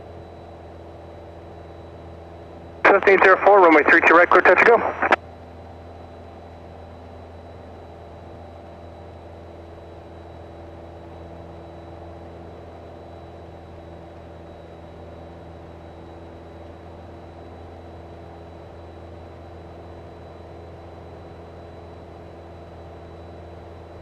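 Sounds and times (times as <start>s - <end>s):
propeller plane engine drone: 0.0s - 24.0s
faint high whine: 1.2s - 5.2s.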